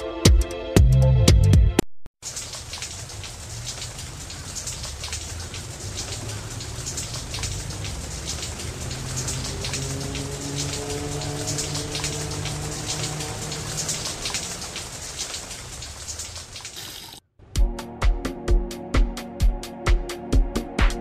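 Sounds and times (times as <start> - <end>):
electronic music with a beat: 0.0 - 1.8, 17.6 - 21.0
rain hiss and patter: 2.2 - 17.2.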